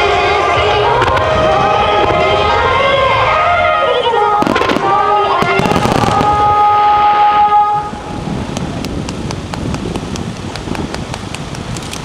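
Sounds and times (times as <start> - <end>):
music: 0.0 - 7.9
noisy outdoor background: 0.0 - 12.0
sharp pops: 8.5 - 12.0.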